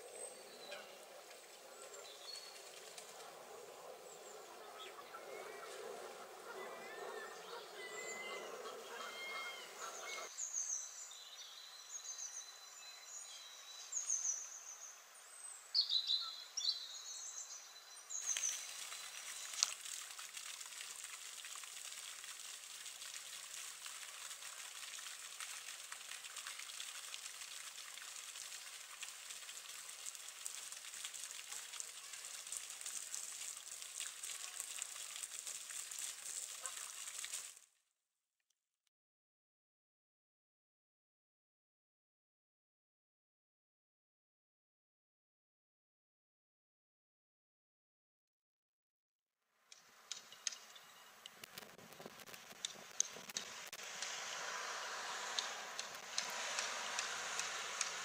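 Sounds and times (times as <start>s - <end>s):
small birds chirping: 4.0s - 20.1s
crackly hiss: 18.1s - 37.6s, 49.8s - 58.0s.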